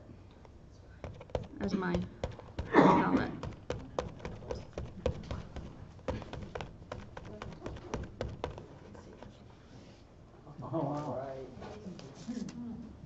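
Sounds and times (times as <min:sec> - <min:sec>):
sponge tapping on canvas: 0:01.0 - 0:09.4.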